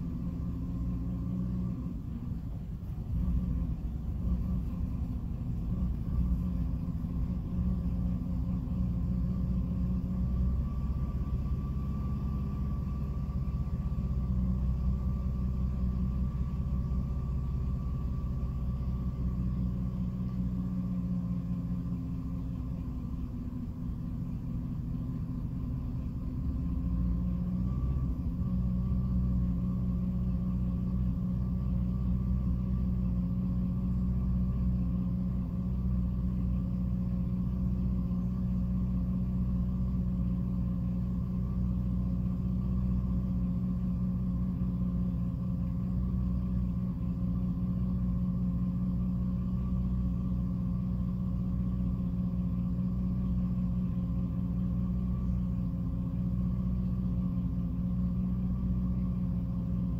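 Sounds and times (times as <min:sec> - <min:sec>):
car engine idling roughly: 0:01.9 - 0:11.6.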